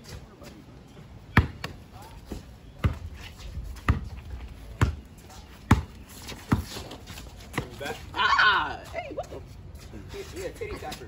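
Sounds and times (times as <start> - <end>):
basketball bouncing on concrete: 1.3 - 1.8, 2.8 - 3.0, 3.8 - 7.8.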